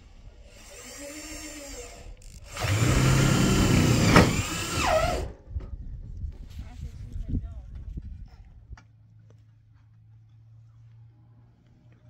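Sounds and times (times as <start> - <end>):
cordless drill driving screw into metal: 0.6 - 5.3.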